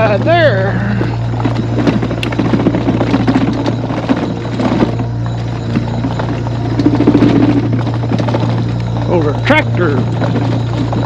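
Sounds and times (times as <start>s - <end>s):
mobility scooter hum: 0.0s - 11.0s
scooter rattling and clattering: 0.0s - 11.0s.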